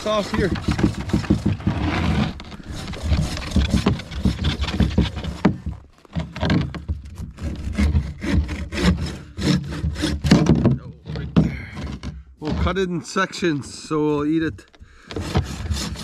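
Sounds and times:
bow saw rasping: 0.0s - 10.4s, 14.9s - 16.0s.

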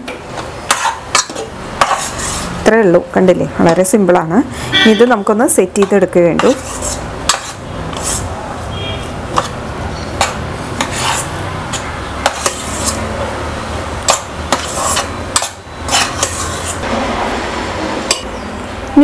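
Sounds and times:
metal spoon scraping steel pan: 0.7s - 2.6s, 4.6s - 13.2s, 14.0s - 16.9s.

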